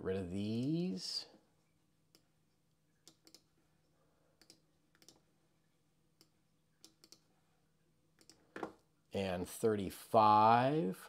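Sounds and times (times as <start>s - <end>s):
faint computer mouse clicks: 3.0s - 3.5s, 4.4s - 5.2s, 6.2s - 7.3s.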